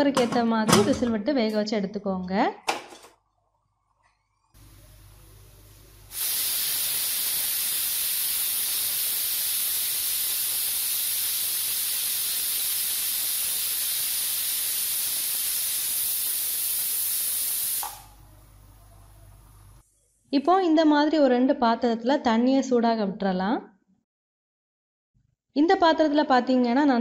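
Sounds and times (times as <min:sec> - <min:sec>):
pressure cooker steam hiss: 0:05.4 - 0:18.2.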